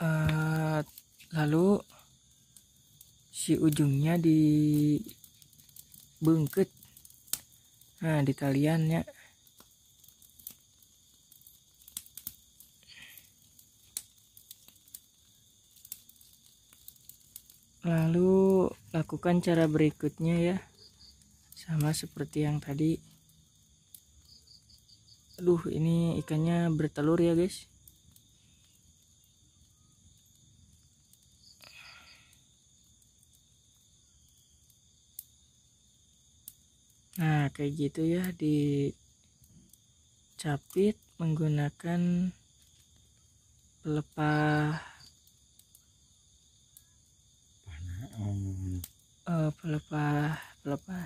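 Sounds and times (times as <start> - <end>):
crickets chirring: 0.0 - 51.0
small clicks of plant material: 5.0 - 7.8, 9.4 - 17.7.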